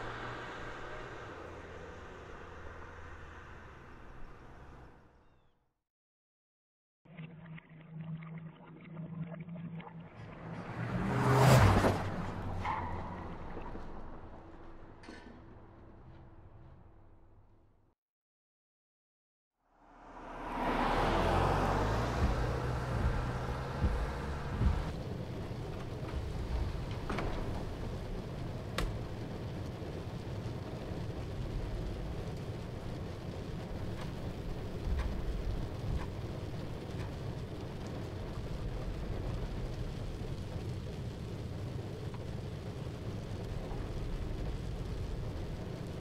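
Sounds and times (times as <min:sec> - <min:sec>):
steady rain: 0:00.0 - 0:03.8, 0:20.0 - 0:46.0
road and tyre noise: 0:00.0 - 0:05.5, 0:09.9 - 0:17.7, 0:19.6 - 0:46.0
low rumble: 0:19.7 - 0:46.0
car engine hum: 0:19.8 - 0:39.9
low thumps: 0:20.9 - 0:25.0.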